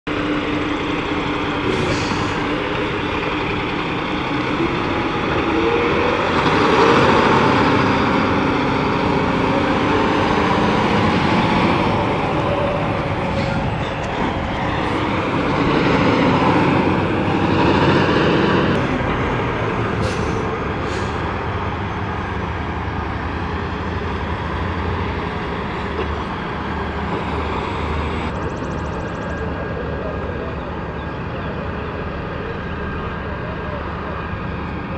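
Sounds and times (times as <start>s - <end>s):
diesel trucks idling and passing: 0.0s - 34.9s
air brake hisses: 1.7s - 2.5s, 20.0s - 21.2s.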